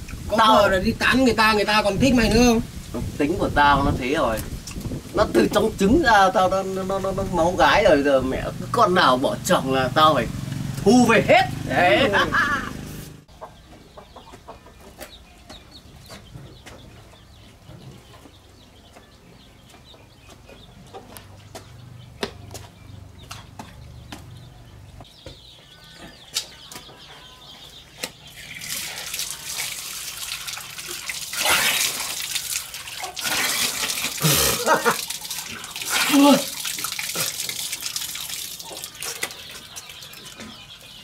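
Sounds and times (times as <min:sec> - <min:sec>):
water gushing onto concrete: 0:28.3 - 0:41.0
hands splashing in water: 0:28.6 - 0:34.3.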